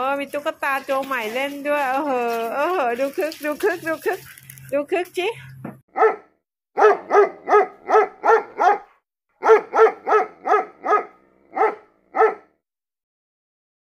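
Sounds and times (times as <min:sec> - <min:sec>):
dog barking: 0:05.9 - 0:12.6.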